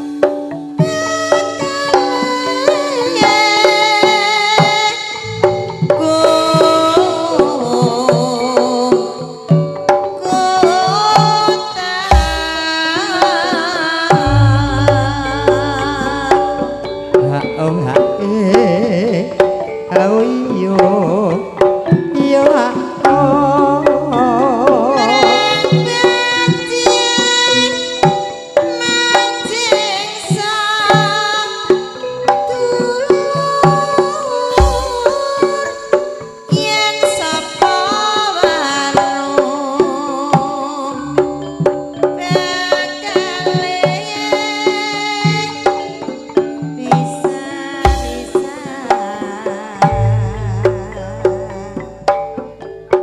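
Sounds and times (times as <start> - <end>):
hand drums: 0.0 - 53.0
woman singing with vibrato: 0.8 - 52.6
deep sustained bass notes: 14.2 - 17.5, 49.9 - 51.7.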